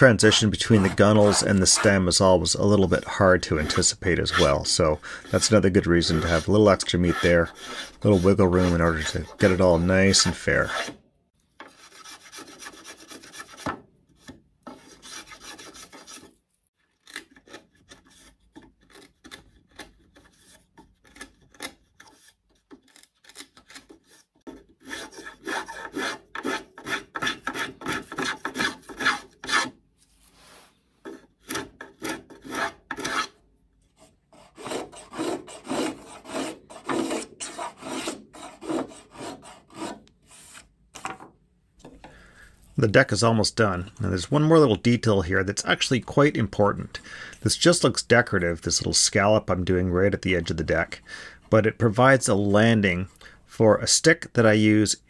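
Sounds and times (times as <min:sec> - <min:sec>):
blade shaving wood: 0:00.0 - 0:11.0, 0:34.3 - 0:40.7.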